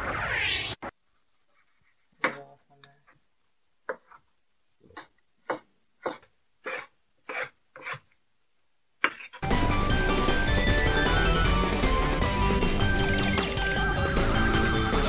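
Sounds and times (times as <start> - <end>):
knife chopping on wooden board: 4.9 - 8.0.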